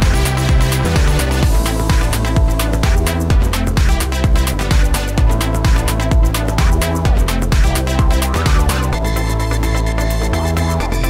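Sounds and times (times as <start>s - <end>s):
electronic music with steady beat: 0.0s - 11.0s.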